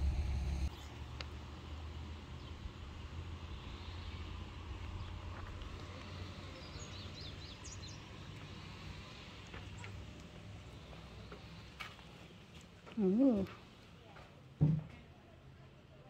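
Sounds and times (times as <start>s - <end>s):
low rumble: 0.0s - 0.7s.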